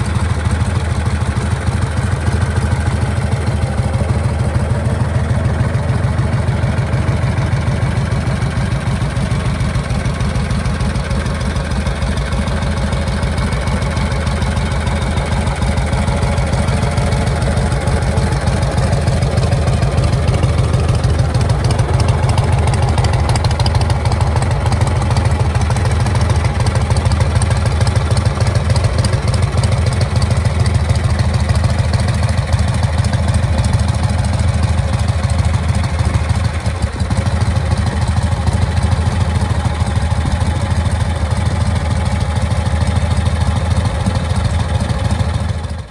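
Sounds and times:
motorcycle engine idling: 0.0s - 45.9s.

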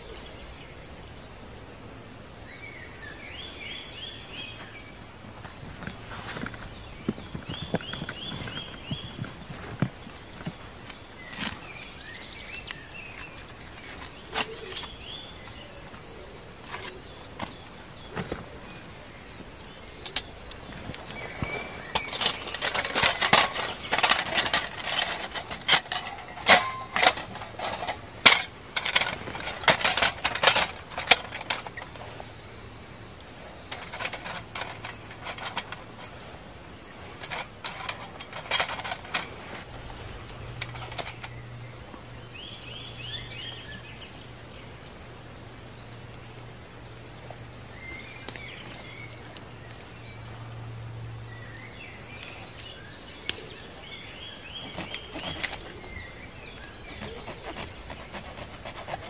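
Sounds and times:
bird chirping: 2.0s - 39.4s, 40.6s - 46.6s, 47.2s - 59.0s
metal clinks of camp stove: 21.9s - 32.2s, 33.7s - 36.3s, 37.1s - 39.4s.

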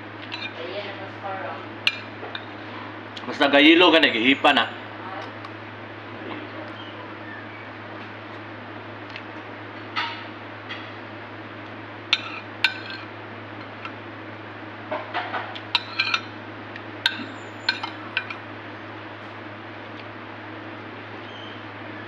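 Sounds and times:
steady low hum: 0.0s - 22.0s
metal spoon clinking ceramic bowl: 17.0s - 18.4s.

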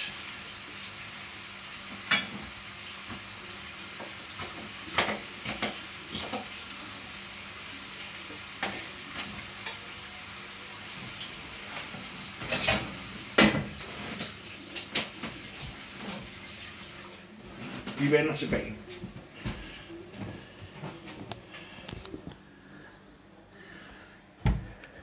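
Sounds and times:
food sizzling in a pan: 0.0s - 17.4s.

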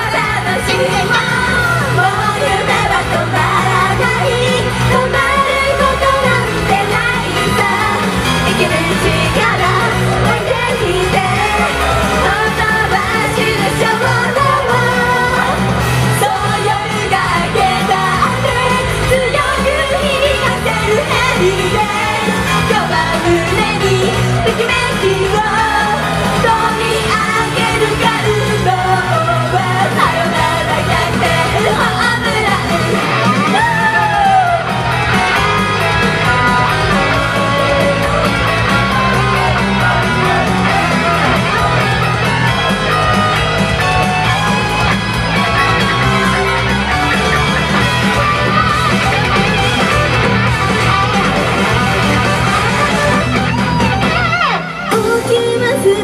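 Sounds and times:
women singing into microphones: 0.0s - 34.7s, 54.9s - 56.0s
audience shouting: 0.0s - 54.9s
loud pop backing track: 0.0s - 56.0s.

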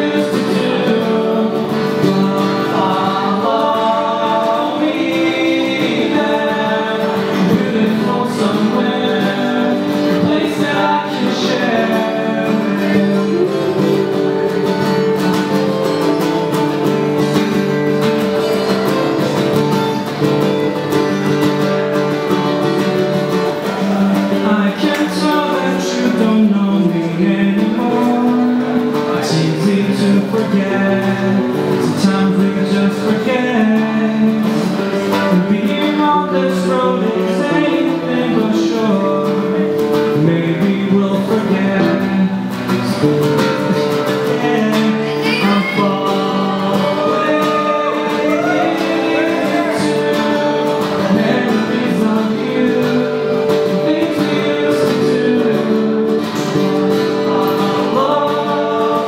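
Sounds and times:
man singing: 0.0s - 19.5s, 23.1s - 59.0s
acoustic guitars playing: 0.0s - 59.0s.

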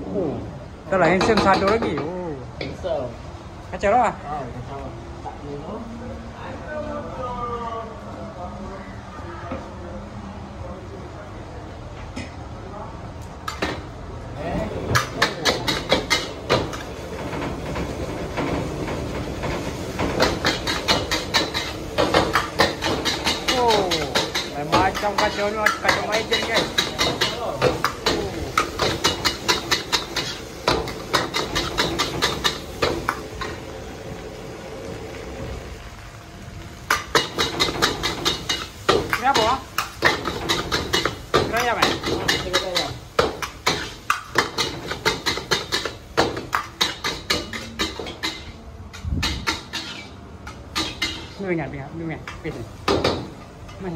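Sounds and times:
gas burner rushing: 14.6s - 48.2s
ladle scraping and clanking on wok: 15.0s - 33.6s, 36.9s - 51.4s.

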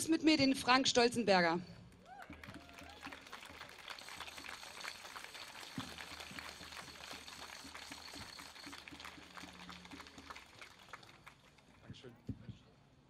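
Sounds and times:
crowd applauding: 1.9s - 12.1s.

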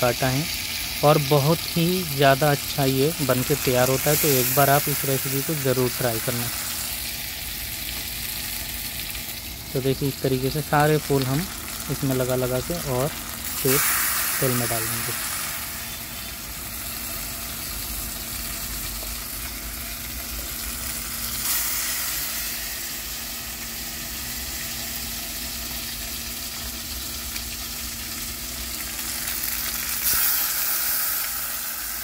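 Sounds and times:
hot oil sizzling: 0.0s - 32.0s.

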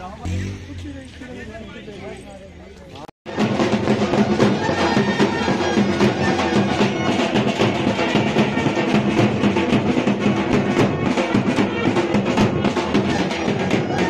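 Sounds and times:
steady drum beat: 3.3s - 14.0s
brass horns playing: 4.1s - 14.0s.

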